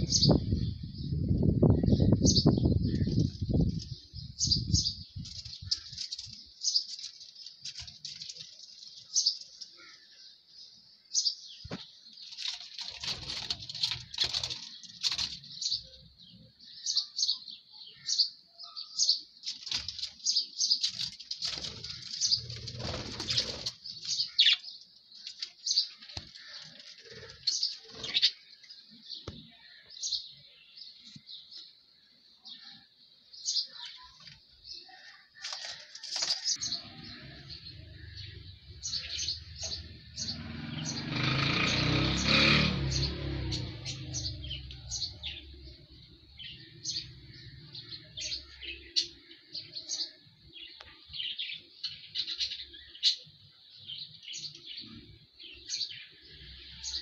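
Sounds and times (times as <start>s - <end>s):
budgerigars chirping: 21.9s - 24.6s.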